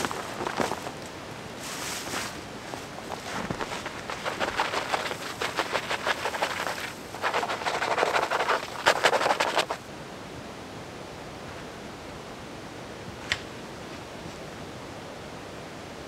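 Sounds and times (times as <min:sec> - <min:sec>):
snow and needles rustling: 0:00.0 - 0:09.9
soft steady hiss: 0:00.0 - 0:16.0.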